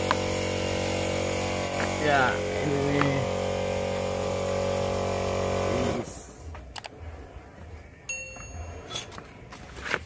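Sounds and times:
steady machine hum: 0.0 - 6.2
bell-like chime: 8.1 - 9.0.

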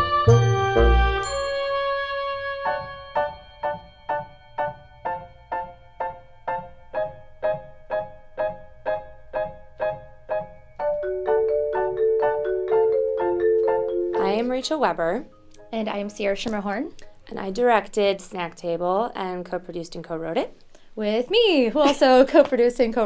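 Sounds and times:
held low orchestral notes: 0.0 - 3.6
staccato piano and mallet notes: 0.0 - 15.9.

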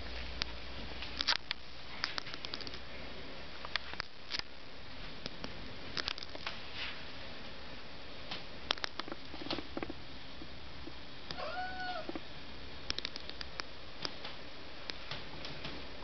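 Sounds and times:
cat meowing: 11.3 - 12.2.

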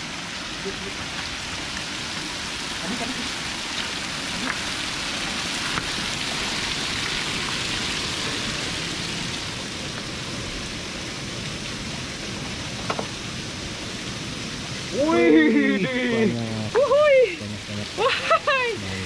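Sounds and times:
rain falling: 0.0 - 19.0
light knocks: 12.8 - 13.1.

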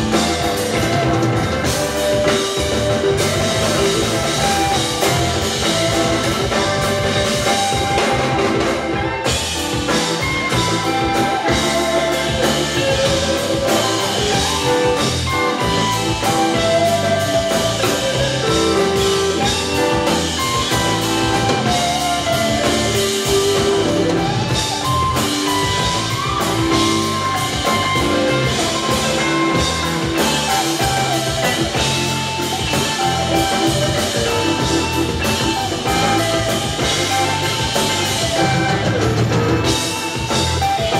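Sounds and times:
bass guitar: 0.0 - 40.9
drum kit: 0.0 - 40.9
electric guitar: 0.0 - 40.9
keyboards: 0.0 - 40.9.

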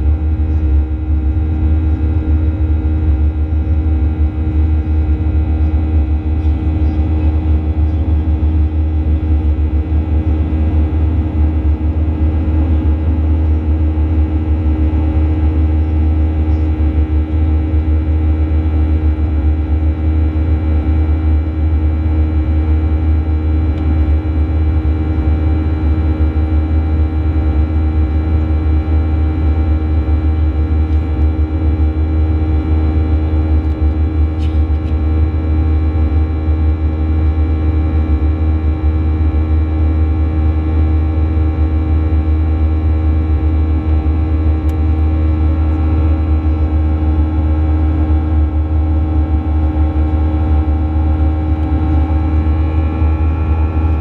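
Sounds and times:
jet engines droning: 0.0 - 54.0
steady tonal hum: 0.0 - 54.0.

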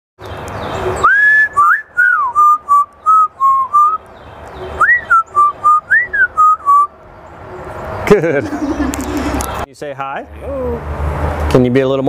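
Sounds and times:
parrot whistling a tune: 1.0 - 4.0, 4.8 - 6.9.

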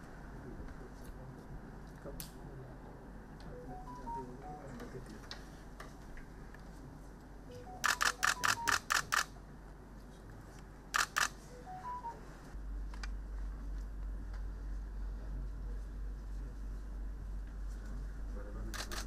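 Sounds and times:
faint short beeps: 3.5 - 4.8, 7.5 - 8.8, 11.5 - 12.3
camera shutters clicking: 7.8 - 9.3, 11.0 - 11.4, 18.7 - 19.0.

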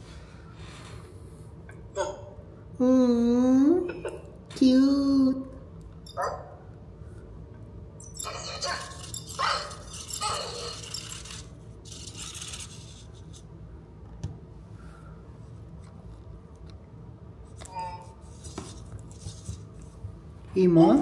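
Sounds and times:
robot body rattling: 8.2 - 13.0.

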